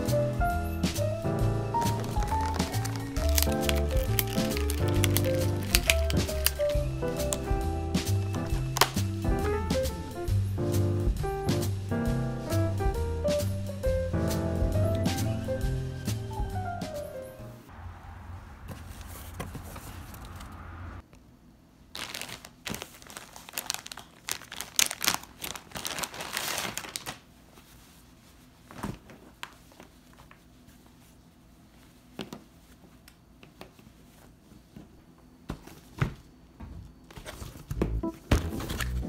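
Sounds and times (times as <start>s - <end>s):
plastic and paper crinkling: 1.7s - 9.3s, 21.9s - 35.0s, 37.1s - 39.0s.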